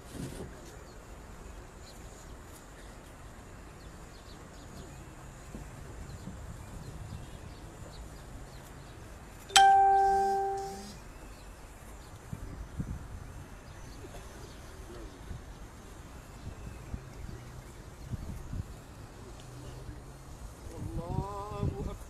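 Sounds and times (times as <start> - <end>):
crowd murmur outdoors: 0.0 - 22.0
two-tone chime: 9.5 - 11.0.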